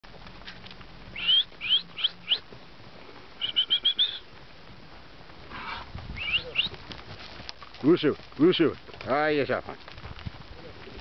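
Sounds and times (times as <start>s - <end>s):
rising whistled notes: 1.2s - 2.4s, 3.4s - 4.2s, 6.2s - 6.8s
short whistles on one pitch: 1.2s - 2.4s, 3.4s - 4.2s, 6.2s - 6.7s.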